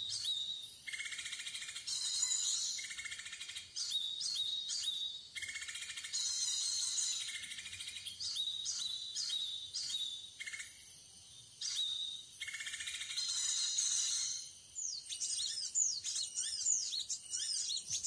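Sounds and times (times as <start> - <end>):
high-pitched bird chirps: 12.9 - 18.0.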